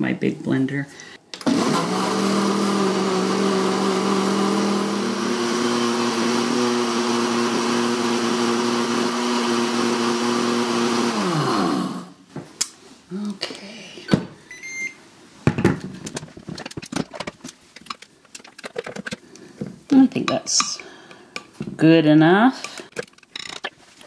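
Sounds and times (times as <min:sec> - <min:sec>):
blender motor whining: 0:01.4 - 0:12.2.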